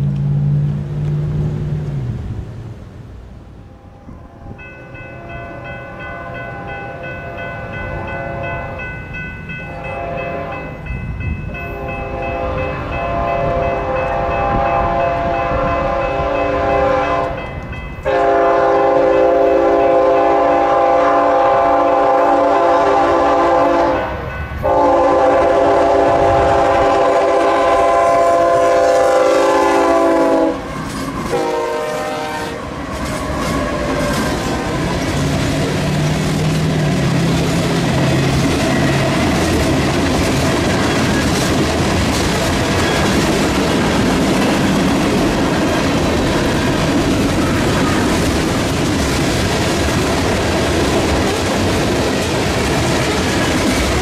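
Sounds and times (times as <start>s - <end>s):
low rumble of train: 0.0s - 54.0s
locomotive air horn blasts: 9.8s - 10.8s, 11.6s - 17.4s, 18.1s - 32.7s.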